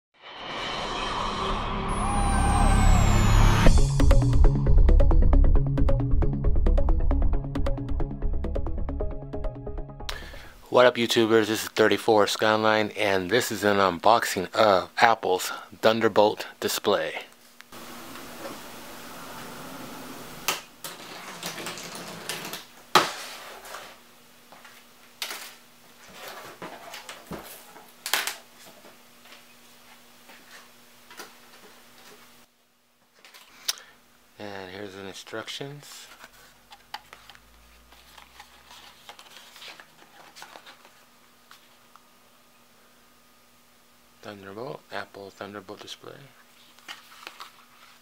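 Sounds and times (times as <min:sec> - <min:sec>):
paper rustling: 0:36.0 - 0:41.7, 0:46.6 - 0:48.0.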